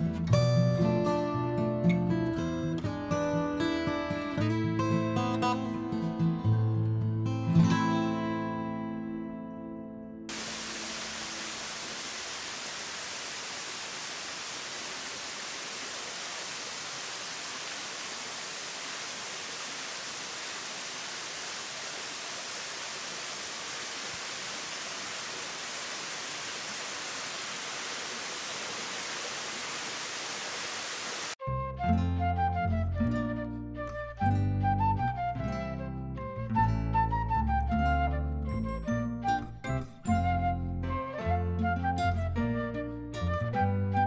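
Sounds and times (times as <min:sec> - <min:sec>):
waterfall rushing: 0:10.3 - 0:31.4.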